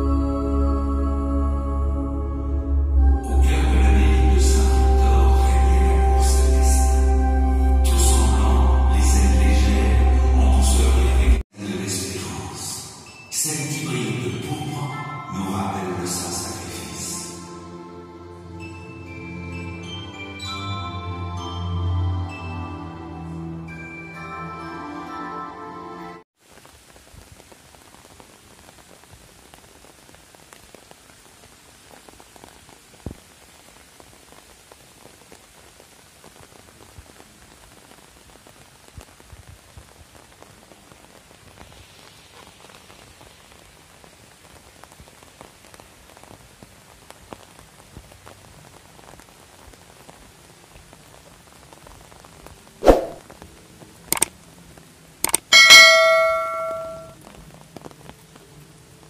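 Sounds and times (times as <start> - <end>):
light rain pattering: 26.4 - 59.0
sharp clicks: 54.1 - 54.3, 55.2 - 55.5
ringing bell-like chime: 55.5 - 57.2.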